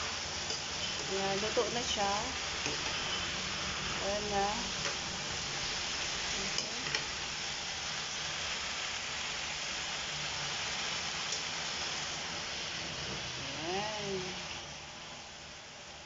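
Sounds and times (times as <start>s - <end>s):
food sizzling in a wok: 0.0s - 16.0s
spatula clicking on pan: 6.5s - 7.0s.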